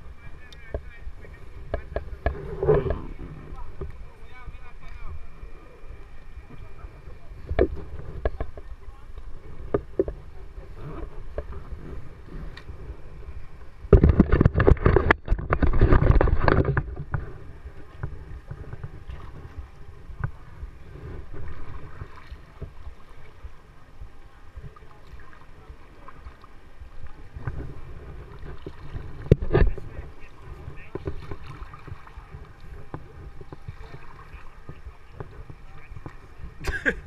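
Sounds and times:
paddle splashing in water: 0.0s - 37.0s
paddle knocking on kayak: 0.6s - 4.0s, 7.4s - 8.8s, 9.6s - 10.3s, 27.4s - 37.0s.

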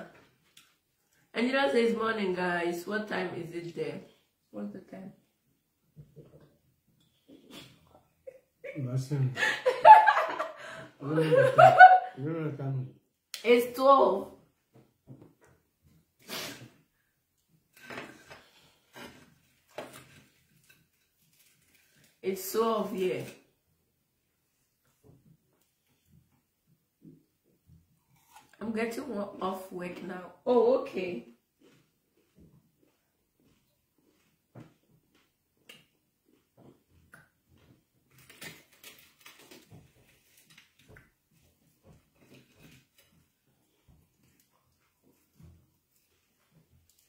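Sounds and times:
chewing clicks and crackles: 31.6s - 41.1s.

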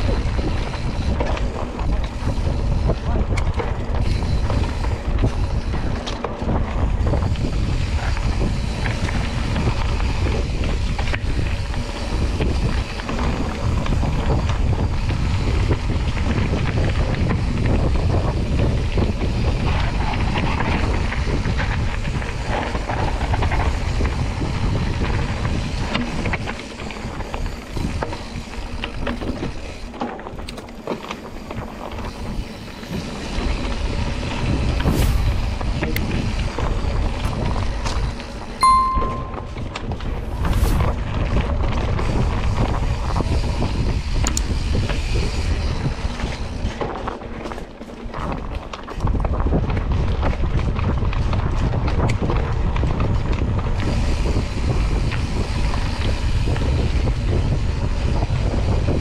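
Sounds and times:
wind buffeting microphone: 0.0s - 30.5s, 31.2s - 38.5s, 39.4s - 47.0s, 48.0s - 59.0s
bike rattling and knocking: 0.0s - 34.8s
tyres rolling over dirt trail: 0.0s - 38.6s, 40.2s - 59.0s.

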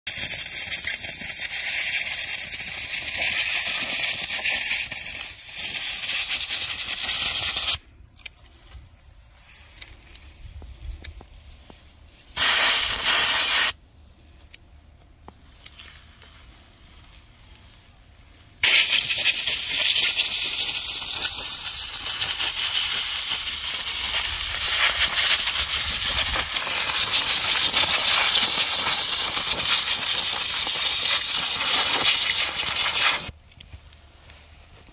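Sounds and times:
compressed air blow gun hissing: 0.1s - 7.8s, 12.3s - 13.8s, 18.6s - 33.3s.

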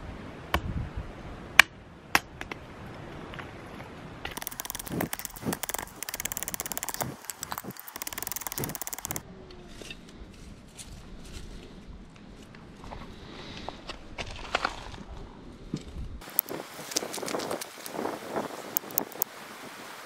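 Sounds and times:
scratchy crackling of splitting kindling: 16.2s - 18.2s.

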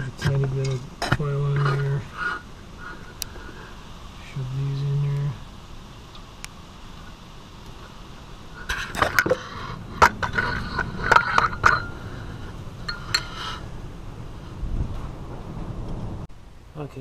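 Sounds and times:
metal clinking and scraping: 8.6s - 13.7s.

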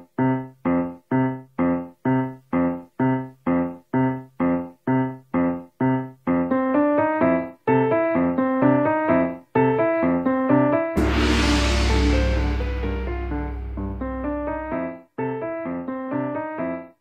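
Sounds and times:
keyboard chords and melody: 0.0s - 17.0s.

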